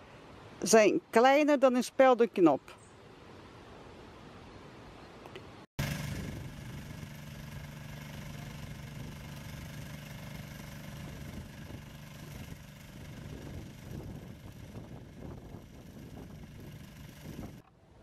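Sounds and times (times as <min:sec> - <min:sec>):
boom lift engine humming: 0:05.8 - 0:17.6.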